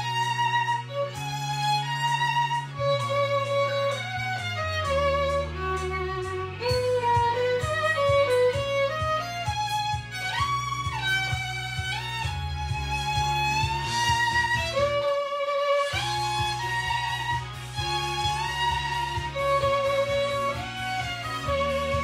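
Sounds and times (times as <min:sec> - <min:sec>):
backing track bass notes: 0:00.0 - 0:22.0
violin melody with vibrato: 0:00.0 - 0:22.0.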